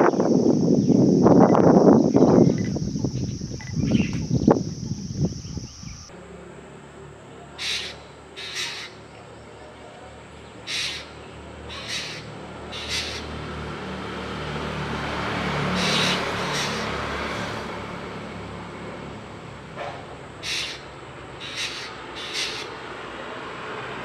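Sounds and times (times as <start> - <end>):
steady low rumble: 0.0 - 6.1
hornbill harsh calls: 7.5 - 9.1, 10.6 - 13.6, 15.6 - 17.6, 20.4 - 23.0.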